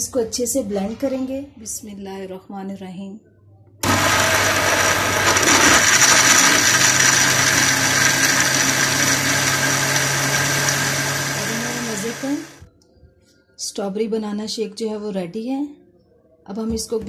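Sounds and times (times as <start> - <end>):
blender crushing ice: 3.8 - 12.6.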